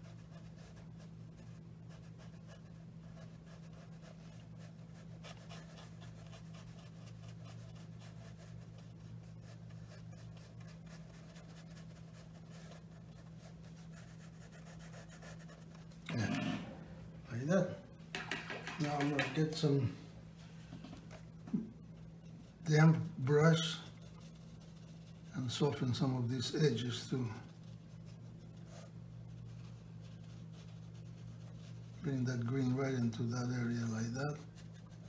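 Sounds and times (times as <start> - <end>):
paintbrush dabbing on paper: 0.0 - 16.8, 17.5 - 19.8, 20.4 - 35.0
low hum: 15.7 - 18.2.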